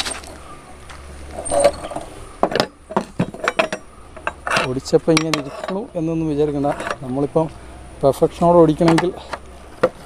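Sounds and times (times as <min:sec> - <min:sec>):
steel rebar clinking on metal pins: 0:01.3 - 0:07.1.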